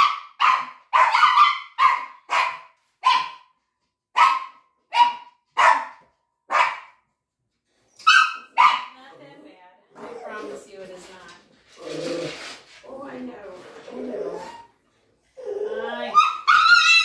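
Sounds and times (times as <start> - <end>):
dog yelping: 7.9 - 8.9, 15.4 - 17.0.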